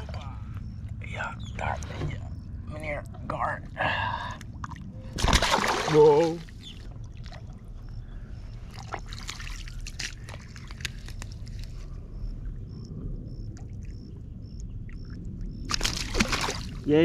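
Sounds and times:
small water splashes: 4.4s - 7.7s, 8.6s - 11.3s, 14.9s - 16.9s.

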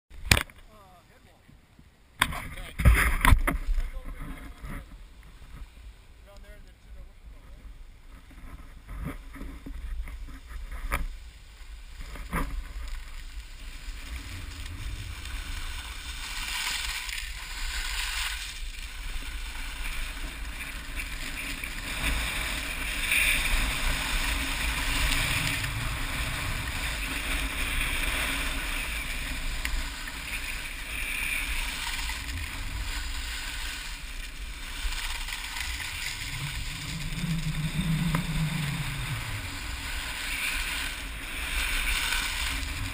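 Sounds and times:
skis scraping over snow: 2.6s - 42.9s
wind buffeting microphone: 35.7s - 42.9s.

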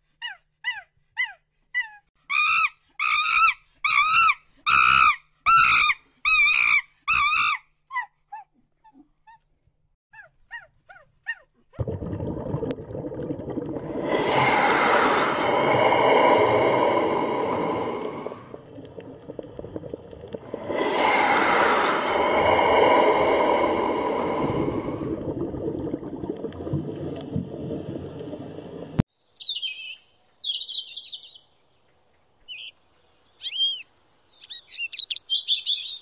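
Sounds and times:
steady rushing noise: 13.8s - 18.6s, 20.4s - 25.2s.

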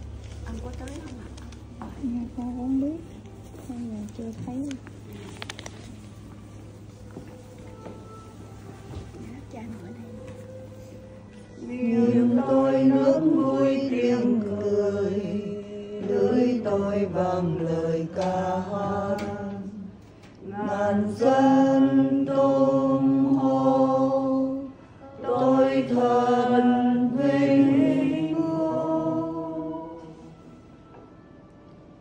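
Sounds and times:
voices singing slow chant: 11.0s - 30.8s.

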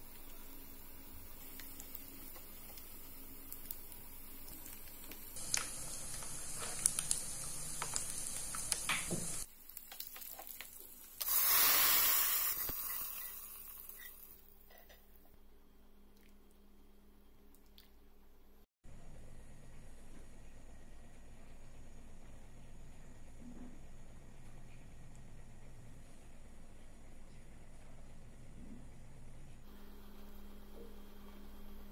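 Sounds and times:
nuts sizzling in hot fat: 0.0s - 14.4s
loud burst of sizzling: 5.3s - 9.5s, 11.0s - 14.4s.

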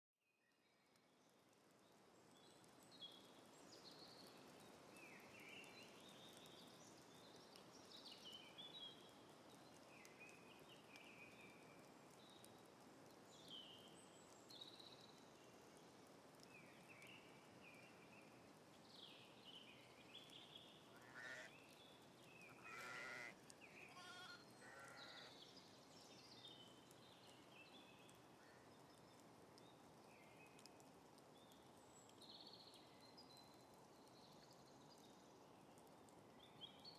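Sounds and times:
small birds chirping: 2.3s - 12.6s
sheep bleating: 22.6s - 23.3s, 23.9s - 25.3s.

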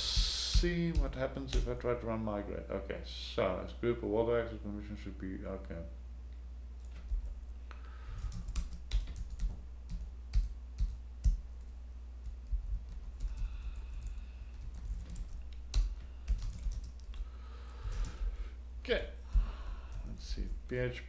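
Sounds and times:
steady low hum: 0.0s - 21.0s
keyboard typing: 8.2s - 17.2s, 17.9s - 18.3s.

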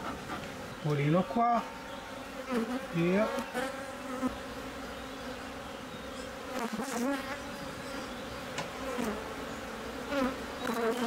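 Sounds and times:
bees humming: 0.0s - 11.0s
single bee buzzes: 2.2s - 11.0s.

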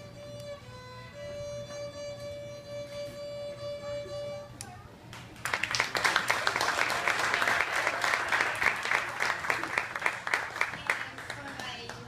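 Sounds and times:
audience applause: 5.2s - 12.0s.

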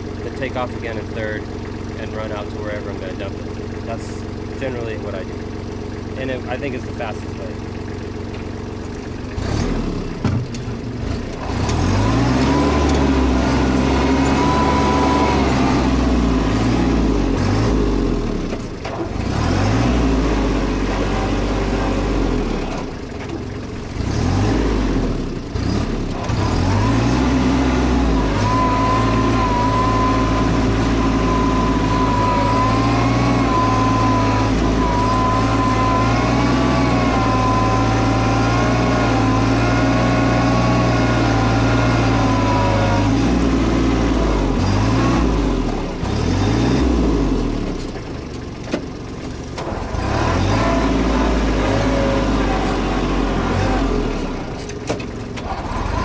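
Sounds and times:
tractor diesel engine working: 0.0s - 56.0s.

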